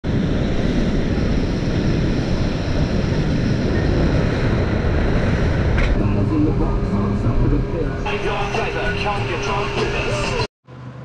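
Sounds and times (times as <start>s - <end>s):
wind buffeting microphone: 0.0s - 8.1s
motorboat wind and water rush: 0.4s - 8.8s.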